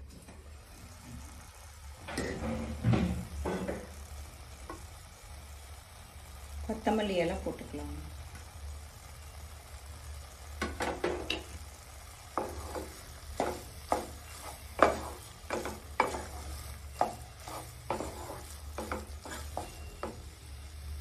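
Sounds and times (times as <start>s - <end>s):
spatula scraping in a pan: 10.5s - 21.0s.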